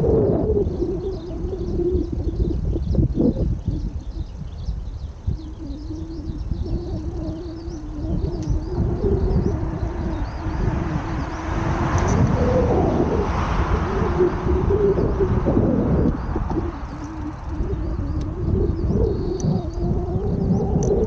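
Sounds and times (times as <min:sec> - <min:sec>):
small birds chirping: 0:00.0 - 0:21.0
low engine hum: 0:07.0 - 0:20.0
low rumble: 0:07.7 - 0:21.0
loud vehicle noise: 0:10.4 - 0:17.5.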